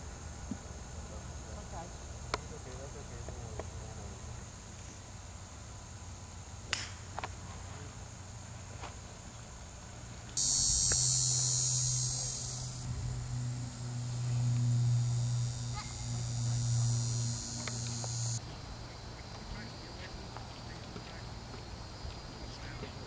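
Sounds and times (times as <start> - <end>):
low steady hum: 10.4 - 23.0
shrill insect chorus: 10.4 - 23.0.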